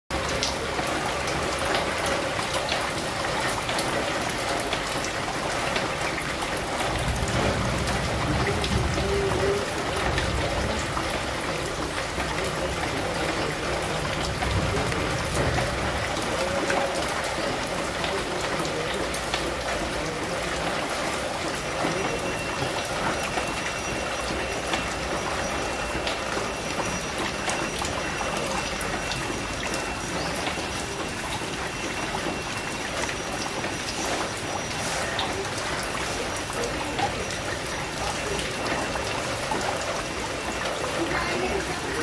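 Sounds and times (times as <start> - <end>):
rain falling on leaves: 0.1 - 42.0
sharp raindrop hits: 0.1 - 42.0.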